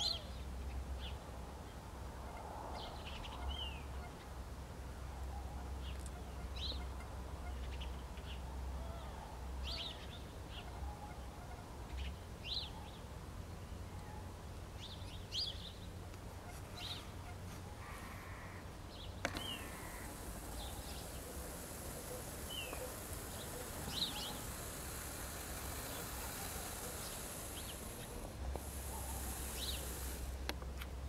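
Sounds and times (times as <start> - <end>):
faint outdoor background: 0.0 - 31.0
click: 19.2 - 19.5
short high bird calls: 19.3 - 30.4.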